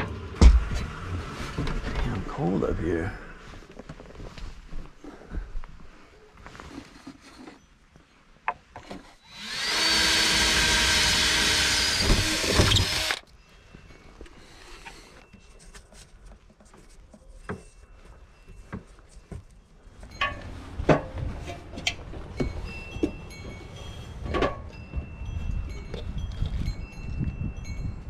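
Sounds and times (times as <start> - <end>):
power drill running: 9.2 - 13.2.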